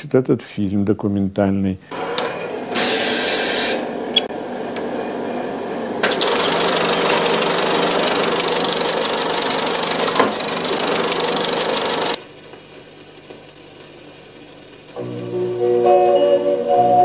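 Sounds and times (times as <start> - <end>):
fast mechanical rattling: 6.0 - 12.2.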